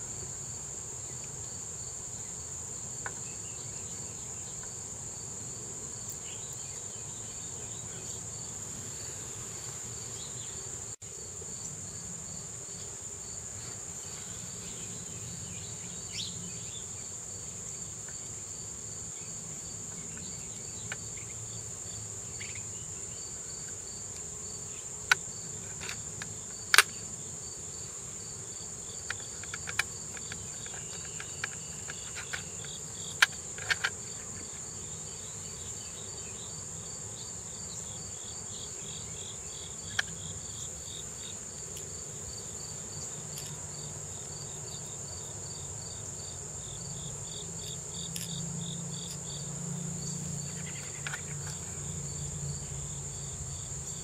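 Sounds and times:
insects droning: 0.0 - 54.0
regular insect chirping: 0.0 - 54.0.

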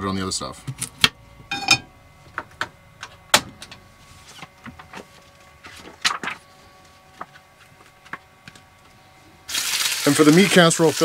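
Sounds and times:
cookware clicks and knocks: 1.5 - 1.9
book pages turning: 4.2 - 6.6.

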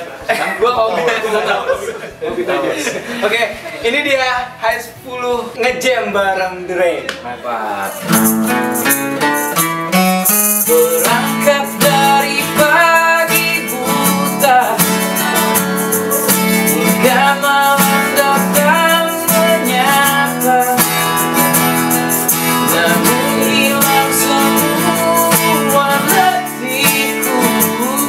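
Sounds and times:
acoustic guitars strumming: 0.0 - 6.2, 7.8 - 28.0
man singing: 10.5 - 28.0.

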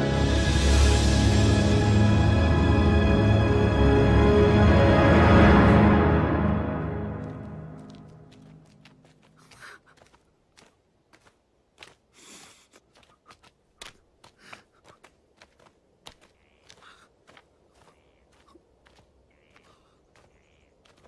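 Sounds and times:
footsteps on stony ground: 7.0 - 21.0.

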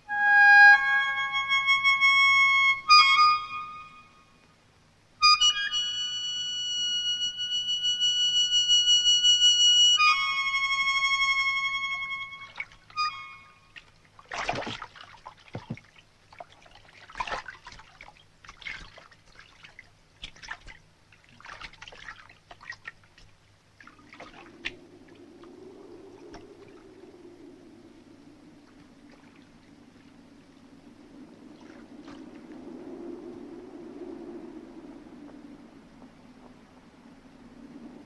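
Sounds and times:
flowing water rushing: 12.0 - 33.5
water splashing and dripping: 12.4 - 13.0, 13.7 - 27.8, 28.5 - 32.7.

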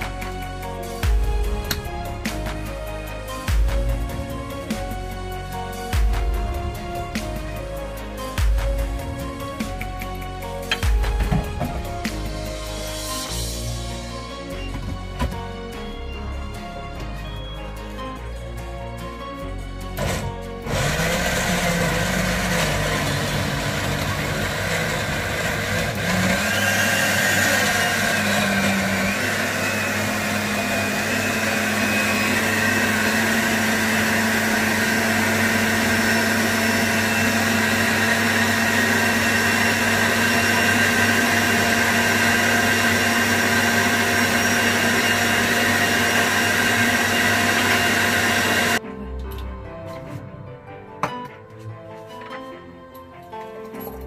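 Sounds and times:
blender running: 19.9 - 48.8.

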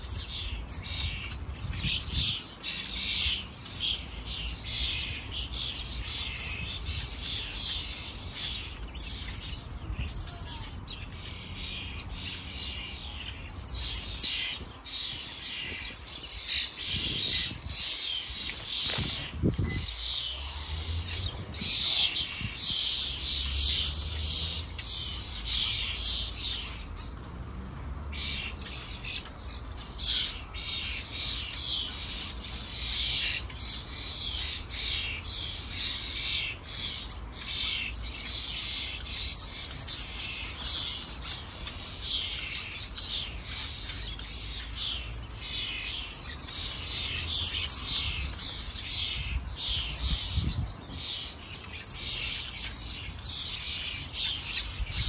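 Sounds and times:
sparrows chirping: 0.0 - 55.0.

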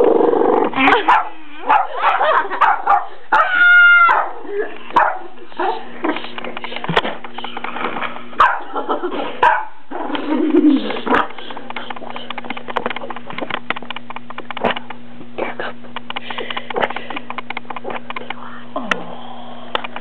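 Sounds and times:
dog yelping: 0.8 - 4.4, 8.4 - 8.7
dog barking and yipping: 0.9 - 5.3, 8.4 - 8.8, 9.4 - 9.8.

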